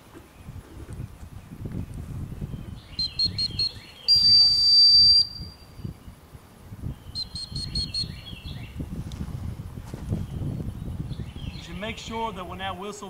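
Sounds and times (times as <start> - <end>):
dog whistle toots: 3.0 - 5.6
long loud whistle blast: 3.0 - 5.7.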